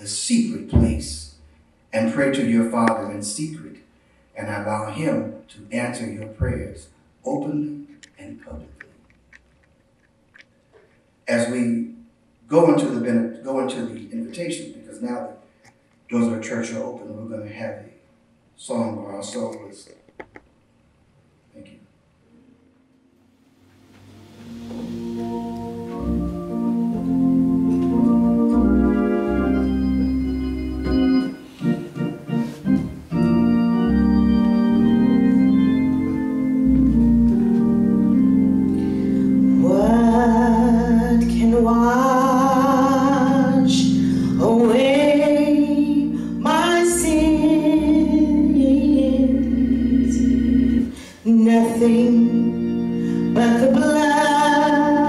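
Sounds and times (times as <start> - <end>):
organ-style keyboard chords: 22.3 - 55.0
woman singing gospel: 39.6 - 52.6, 53.3 - 55.0.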